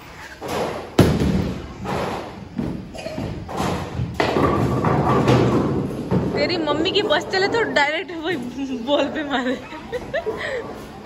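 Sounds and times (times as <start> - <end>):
bowling ball landing thud: 0.5 - 6.6.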